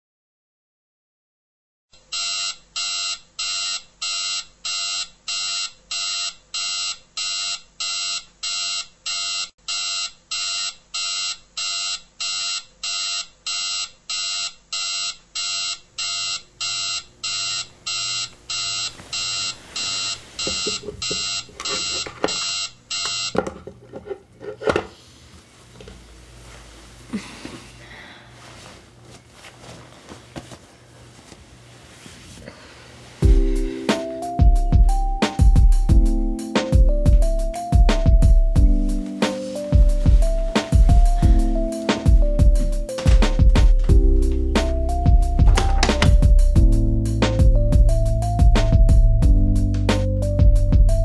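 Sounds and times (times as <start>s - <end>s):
alarm clock beeping: 2.1s - 23.4s
bedding rustling: 18.6s - 21.5s, 25.0s - 33.3s, 39.1s - 44.0s.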